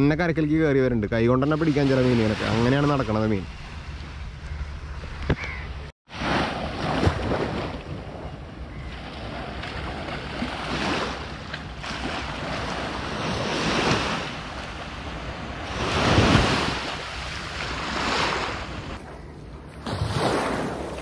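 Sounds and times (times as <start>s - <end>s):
sea waves washing onto sand: 9.0s - 19.0s.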